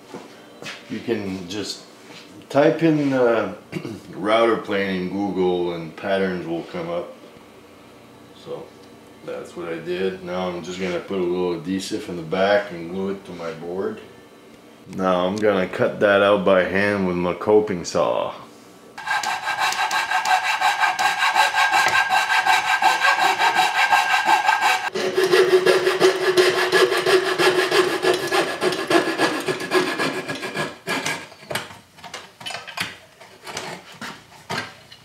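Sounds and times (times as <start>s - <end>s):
coping saw cutting wood: 19.0s - 31.4s.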